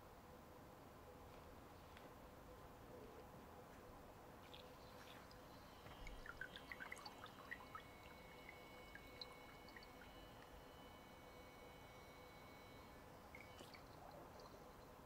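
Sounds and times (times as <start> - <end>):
water drips and small splashes: 4.4 - 15.0.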